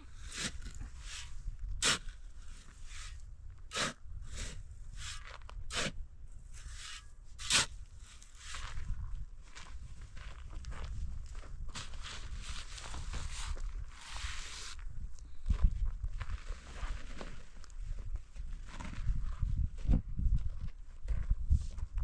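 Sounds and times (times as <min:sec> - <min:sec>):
sharp crunching scraping strokes: 0:00.2 - 0:08.9, 0:11.8 - 0:14.8.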